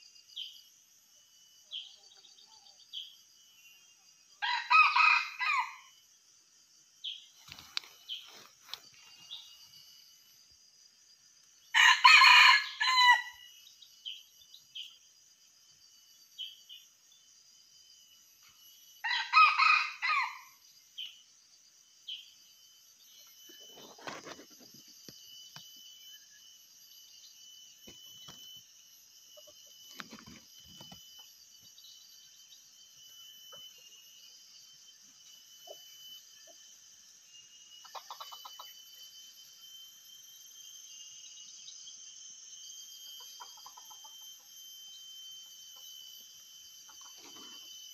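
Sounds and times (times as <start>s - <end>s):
rooster crowing: 4.4s - 5.9s, 11.7s - 13.5s, 19.0s - 20.6s
steady high hum: 5.3s - 11.8s, 19.9s - 47.9s.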